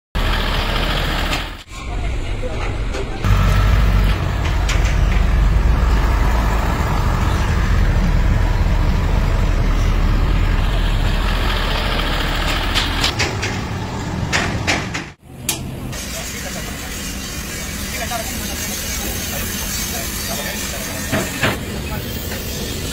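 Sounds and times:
heavy truck engine running: 0.2s - 16.8s.

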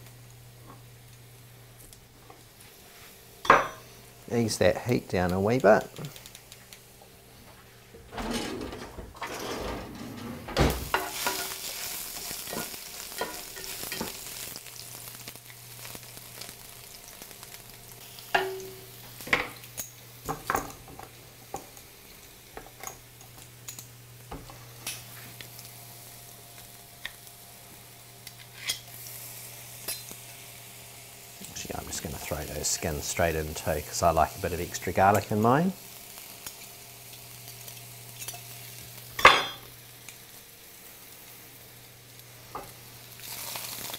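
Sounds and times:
ginger sizzling in a pan: 0.0s - 7.9s, 10.7s - 43.9s.

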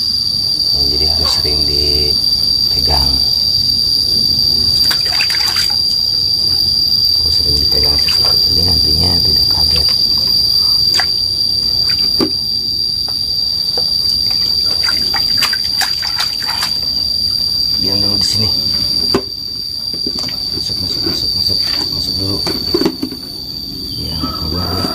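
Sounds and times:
high-pitched insect trill: 0.0s - 24.9s
water splashing in plastic basin: 4.8s - 5.9s, 7.3s - 10.2s, 10.8s - 12.4s, 14.1s - 17.0s, 20.0s - 23.1s.

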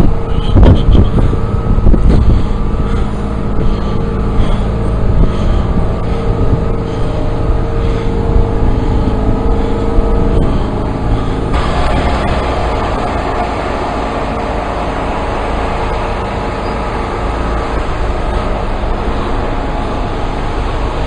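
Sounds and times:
lorry diesel engine idling: 0.0s - 21.0s
wind buffeting microphone: 0.0s - 21.0s.

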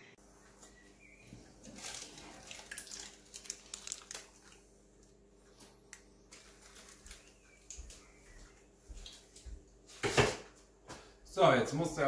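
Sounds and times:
baking paper crinkling: 1.5s - 4.7s, 5.7s - 8.2s.

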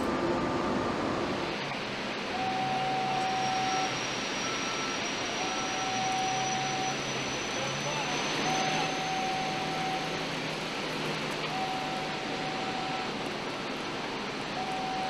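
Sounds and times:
machinery hum: 0.0s - 15.0s
long warning alarm tone: 2.2s - 15.0s
short high beeps: 2.4s - 10.3s, 11.4s - 13.2s, 14.6s - 15.0s.

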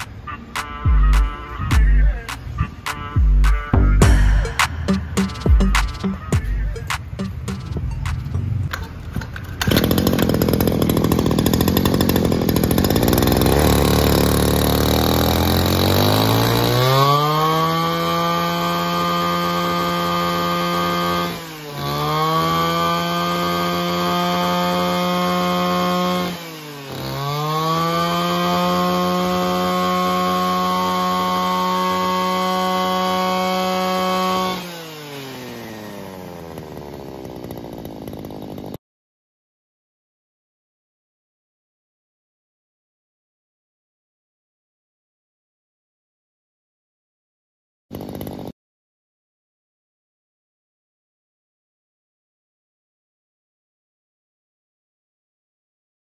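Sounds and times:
brush cutter engine running: 4.3s - 38.8s, 47.9s - 48.5s.

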